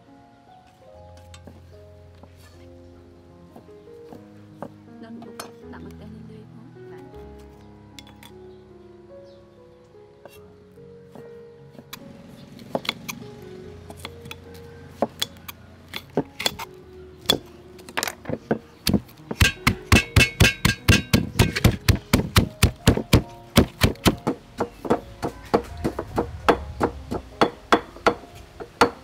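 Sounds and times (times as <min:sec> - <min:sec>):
pestle pounding in stone mortar: 0:18.4 - 0:29.0.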